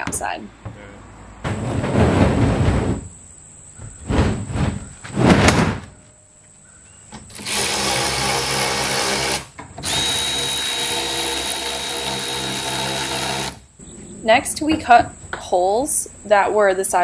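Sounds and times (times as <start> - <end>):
handheld power tool whining: 7.3 - 13.6.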